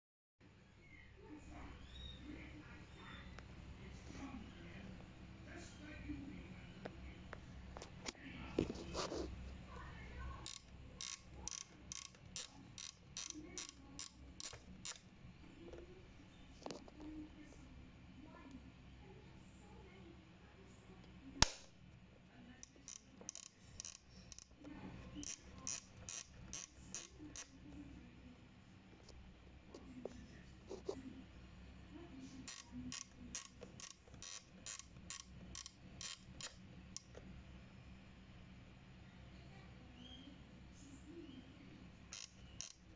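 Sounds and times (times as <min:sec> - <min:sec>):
iron dial clicking: 0:10.4 - 0:15.0, 0:22.6 - 0:24.6, 0:32.5 - 0:37.1, 0:42.1 - 0:42.9.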